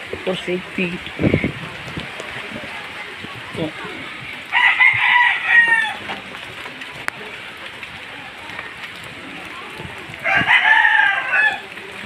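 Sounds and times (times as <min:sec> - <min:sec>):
steady rain: 0:00.0 - 0:12.0
rooster crowing: 0:04.5 - 0:06.1, 0:10.2 - 0:11.7.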